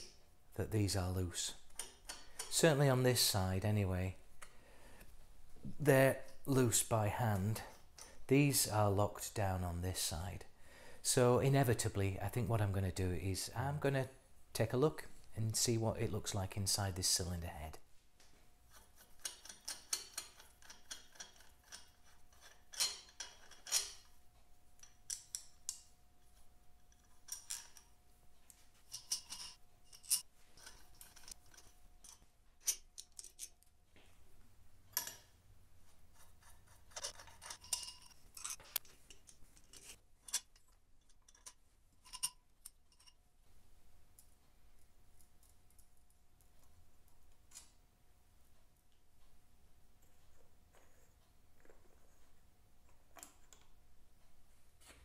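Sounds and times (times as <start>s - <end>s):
small metal parts clicking: 18.7s - 24.1s, 24.8s - 25.9s, 26.8s - 28.0s, 28.9s - 33.7s, 36.9s - 43.2s.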